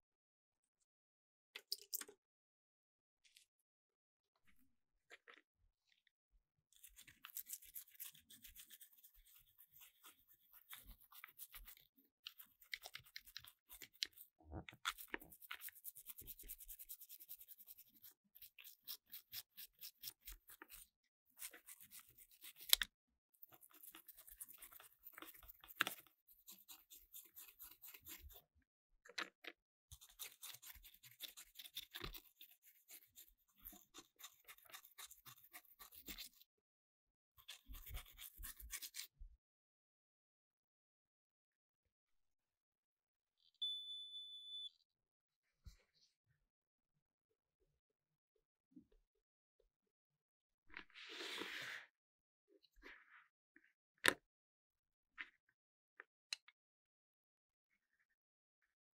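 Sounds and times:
scratchy scrubbing on plastic: 0:06.8 - 0:22.8, 0:23.4 - 0:28.4, 0:29.9 - 0:36.5, 0:37.4 - 0:39.1, 0:50.9 - 0:51.9.

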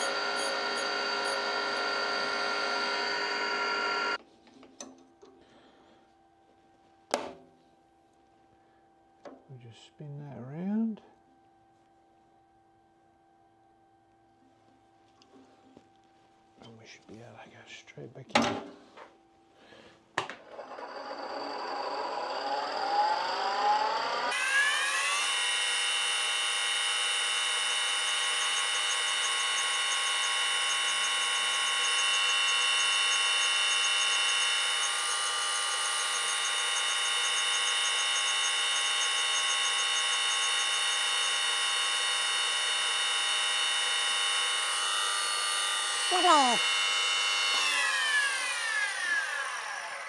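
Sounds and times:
grinder spindle whining: 0:00.0 - 0:04.2, 0:20.5 - 0:50.0
grinding wheel on metal: 0:00.0 - 0:04.2, 0:27.1 - 0:50.0.

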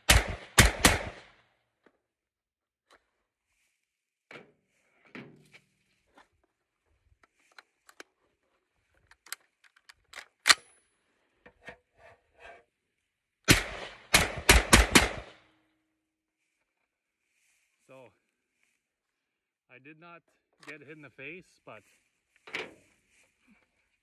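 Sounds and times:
rifle shots: 0:00.0 - 0:01.4, 0:13.5 - 0:15.4
rifle handling clicks and knocks: 0:07.1 - 0:10.8.

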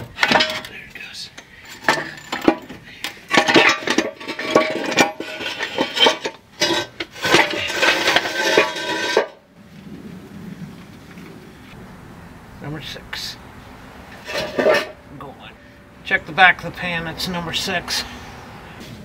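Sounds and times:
metal tools clanking: 0:00.0 - 0:09.4, 0:14.2 - 0:15.1.

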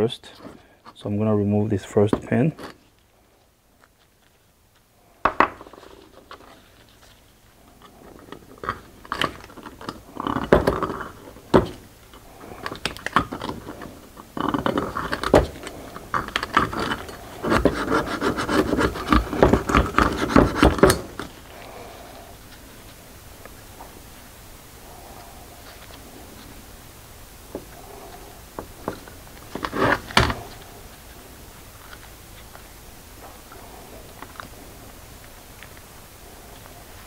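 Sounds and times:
metal parts rubbing and scraping: 0:12.4 - 0:21.7.

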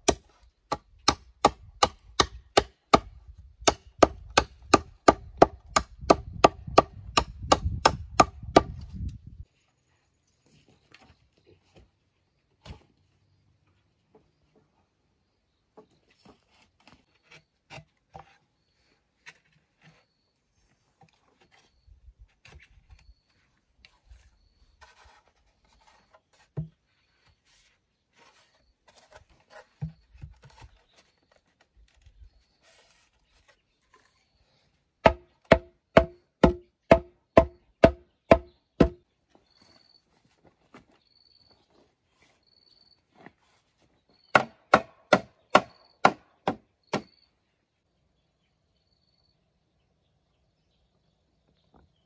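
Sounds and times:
bamboo struck with a blade: 0:00.0 - 0:08.8, 0:35.0 - 0:39.0, 0:44.3 - 0:47.1
handling knocks and scraping on bamboo: 0:00.0 - 0:09.7, 0:10.4 - 0:14.8, 0:15.7 - 0:47.2.

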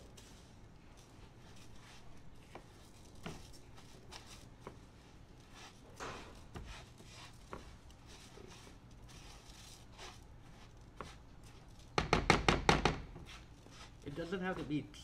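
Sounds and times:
utensil scraping rice in pan: 0:00.0 - 0:11.8, 0:13.2 - 0:14.9.

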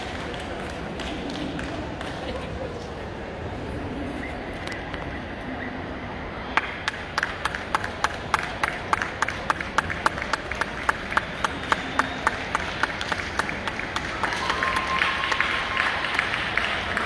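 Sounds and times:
rhythmic hand clapping: 0:00.0 - 0:02.5, 0:06.6 - 0:17.0
crowd murmur in large hall: 0:00.0 - 0:17.0.

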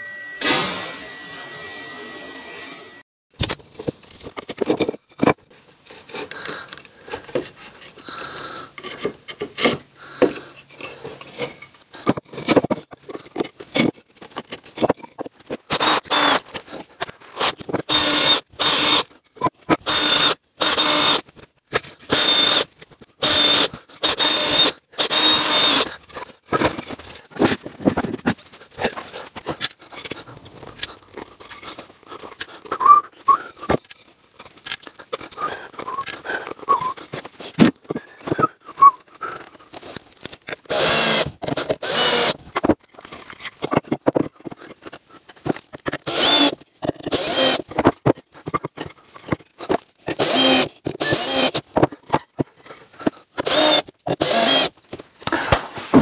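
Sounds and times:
cordless drill bursts: 0:00.4 - 0:03.0, 0:15.7 - 0:16.4, 0:17.9 - 0:19.1, 0:19.9 - 0:21.2, 0:22.1 - 0:25.9, 0:40.7 - 0:42.4, 0:46.0 - 0:47.6, 0:50.1 - 0:51.6, 0:53.4 - 0:54.7
clicks and knocks of wood: 0:42.4 - 0:54.2.

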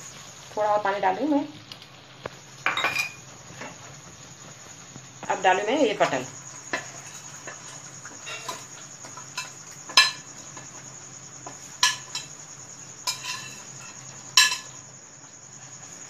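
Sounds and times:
spoon clinking against pan: 0:09.4 - 0:10.3, 0:11.8 - 0:12.4, 0:13.0 - 0:14.8.

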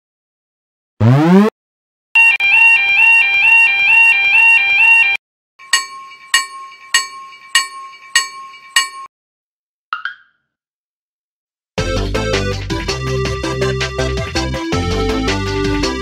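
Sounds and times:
two-tone electronic warble alarm: 0:02.2 - 0:05.2
crossing bell ringing: 0:05.6 - 0:09.1.

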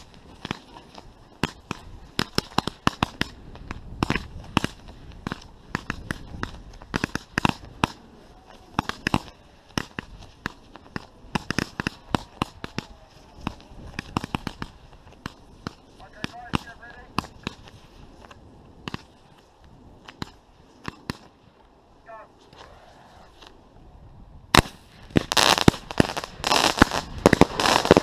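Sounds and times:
fireworks bangs and cracks: 0:00.0 - 0:08.0, 0:08.7 - 0:19.2, 0:24.5 - 0:28.0.

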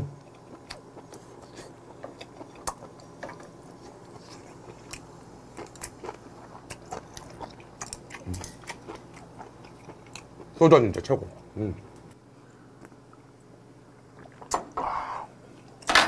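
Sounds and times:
wet chewing and crunching: 0:00.2 - 0:11.5
person humming mm: 0:08.2 - 0:08.6.

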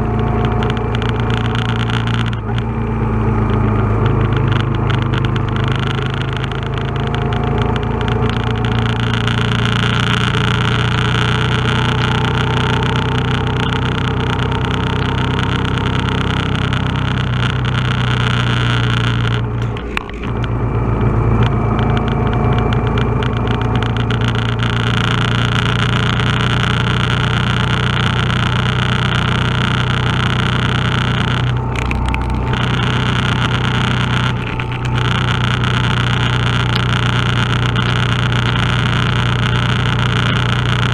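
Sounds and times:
motorcycle engine running: 0:00.0 - 0:40.9
road and wind noise: 0:00.0 - 0:40.9.

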